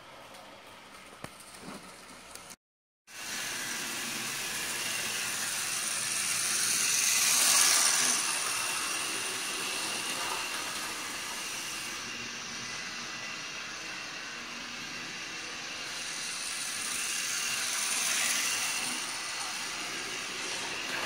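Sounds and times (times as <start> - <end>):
model train rattling on track: 3.2 - 11.8, 15.3 - 21.0.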